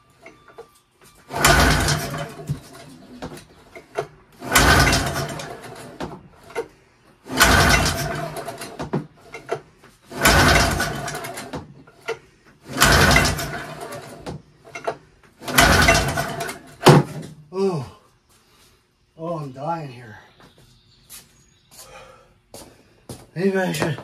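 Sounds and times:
recoil starter pulls cranking engine: 1.3 - 2.9, 3.8 - 17.0.

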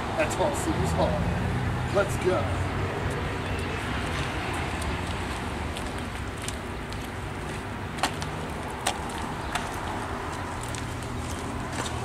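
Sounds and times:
traffic hum: 0.0 - 12.0.

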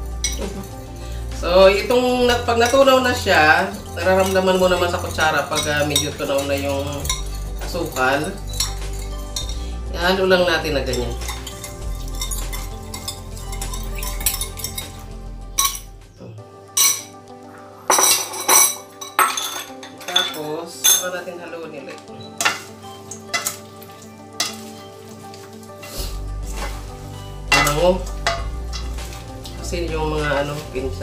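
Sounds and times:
spoon scraping metal bowl: 3.7 - 9.6, 10.9 - 15.0.

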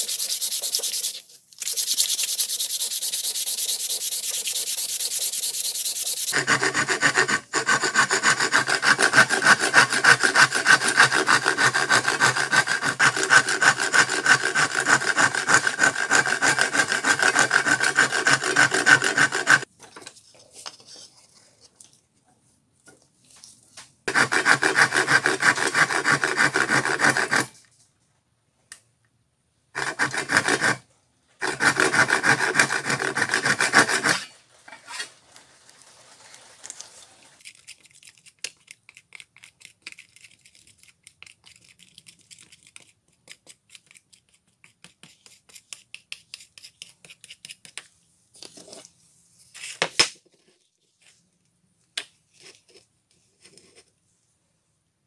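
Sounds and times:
wood rasping on sandpaper: 0.0 - 19.7, 24.1 - 27.5, 29.8 - 30.8, 31.4 - 35.1.

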